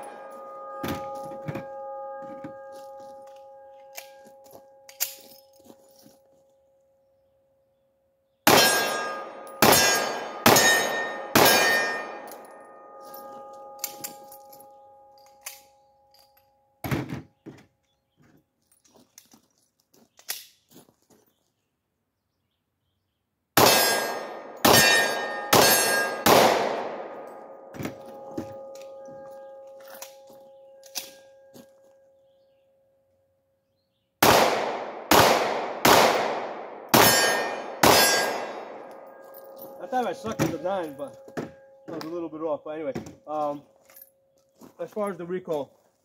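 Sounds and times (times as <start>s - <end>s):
pistol shots ringing: 8.4s - 15.8s, 23.6s - 31.4s, 34.2s - 42.2s.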